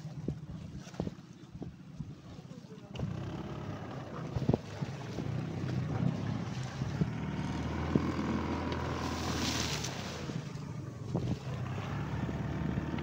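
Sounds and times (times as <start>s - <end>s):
boat engine running: 0.0s - 13.0s
water rushing past: 3.0s - 13.0s
wind noise: 9.0s - 11.8s.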